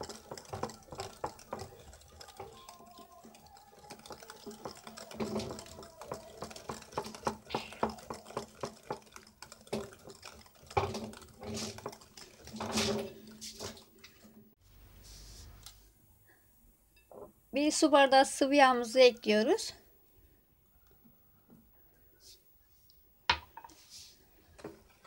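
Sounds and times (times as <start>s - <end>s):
whisk clicking against glass bowl: 0.0s - 13.0s
liquid sloshing: 0.0s - 14.5s.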